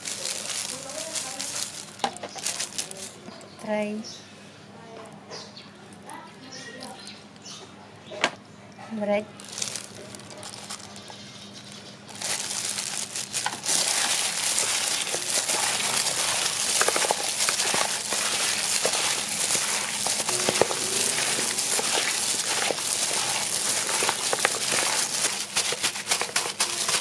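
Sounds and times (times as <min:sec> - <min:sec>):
plastic bag crinkling: 0:00.0 - 0:03.2, 0:09.3 - 0:27.0.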